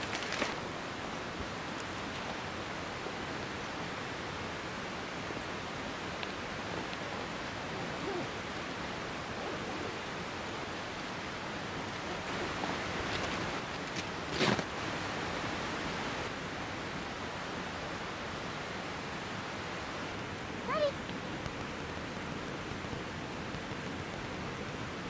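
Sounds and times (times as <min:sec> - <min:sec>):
sharp rustle: 0:00.0 - 0:00.6
outdoor ambience hiss: 0:00.0 - 0:25.0.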